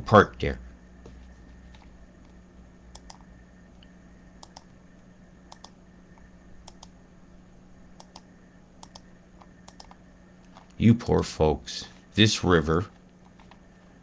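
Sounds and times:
low hum: 0.0s - 14.0s
computer mouse clicks: 2.9s - 4.7s, 5.5s - 7.0s, 8.0s - 11.2s.

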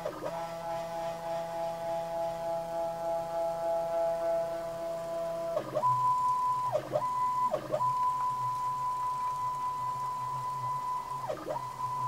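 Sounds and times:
stepper motor whine: 0.0s - 8.6s.

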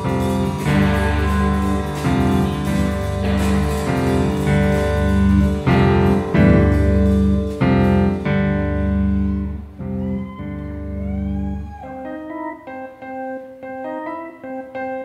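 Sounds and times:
cymbals: 0.0s - 12.6s
rock band playing instrumental: 0.0s - 15.0s.

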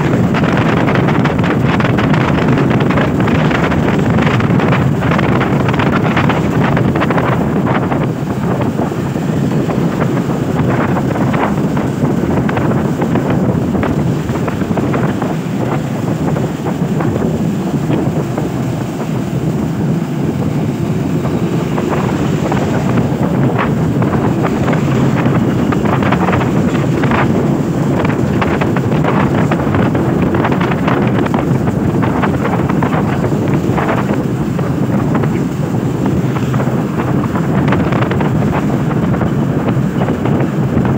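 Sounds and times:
wind buffeting microphone: 0.0s - 40.9s.

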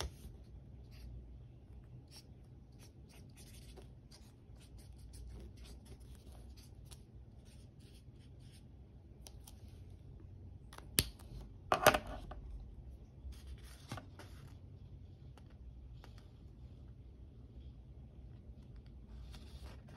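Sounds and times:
plastic pens clattering on desk: 11.7s - 12.4s
paper rustling: 13.3s - 14.6s.

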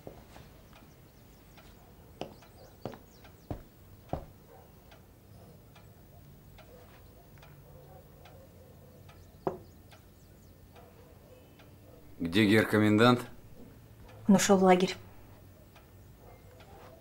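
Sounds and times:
faint regular ticking: 0.5s - 17.0s
hard shoes on wooden floor: 2.2s - 4.4s.

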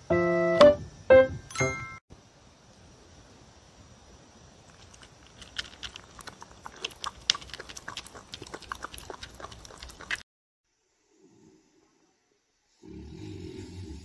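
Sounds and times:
dog eating and chewing: 4.7s - 10.2s.

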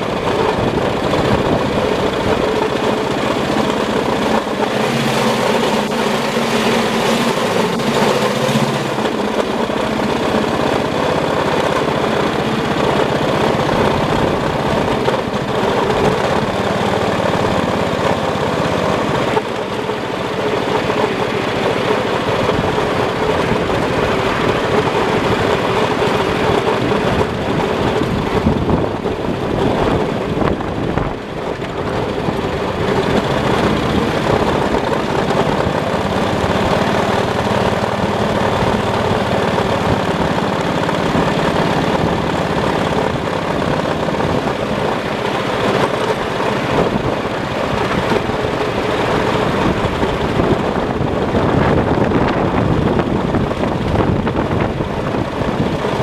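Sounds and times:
miniature locomotive running: 0.0s - 56.0s.

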